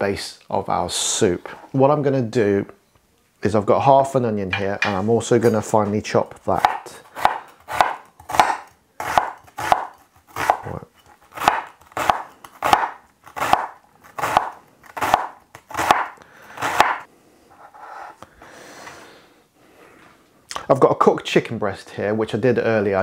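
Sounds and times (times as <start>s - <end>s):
knife chopping on wooden board: 6.6s - 10.6s, 11.4s - 17.0s.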